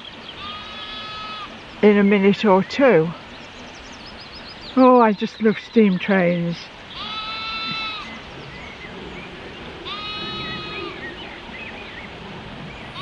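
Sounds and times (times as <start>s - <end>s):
lamb bleating: 0.4s - 1.5s, 6.9s - 8.1s, 9.8s - 10.8s.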